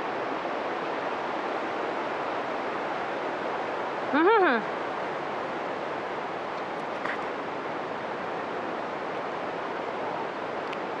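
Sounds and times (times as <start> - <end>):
waterfall roaring: 0.0 - 11.0.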